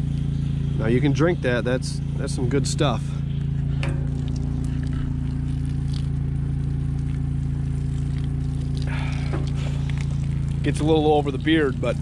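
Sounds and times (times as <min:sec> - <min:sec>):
generator and pumps droning: 0:00.0 - 0:12.0.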